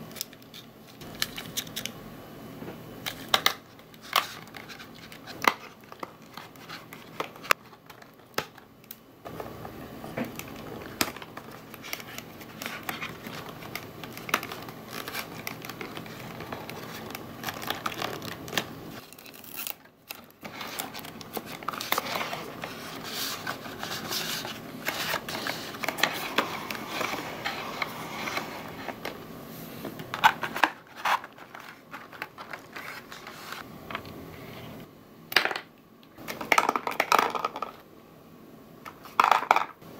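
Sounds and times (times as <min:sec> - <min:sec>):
cardboard rustling and scraping: 0:20.4 - 0:33.6.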